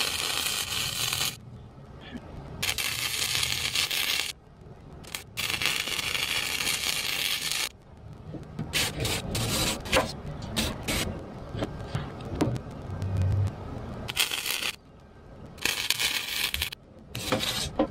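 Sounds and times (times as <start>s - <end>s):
welding arc crackling hiss: 0.0s - 1.4s, 2.6s - 4.4s, 5.0s - 7.8s, 8.7s - 11.5s, 12.6s - 14.8s, 15.6s - 17.7s
clicks and scrapes: 8.6s - 12.7s, 15.6s - 17.9s.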